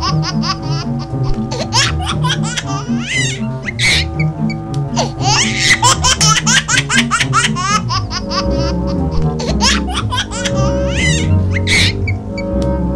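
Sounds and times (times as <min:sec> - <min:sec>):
music with steady beat: 0:00.0 - 0:12.9
high-pitched laughter: 0:05.0 - 0:12.2.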